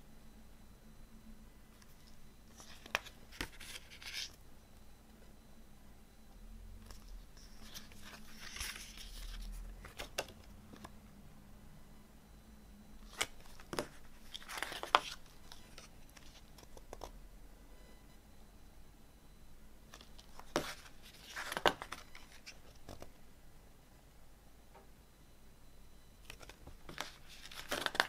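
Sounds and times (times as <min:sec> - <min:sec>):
paper pages rustling: 0:01.8 - 0:04.4, 0:06.8 - 0:10.9, 0:13.1 - 0:17.0, 0:19.9 - 0:23.1, 0:26.3 - 0:28.0.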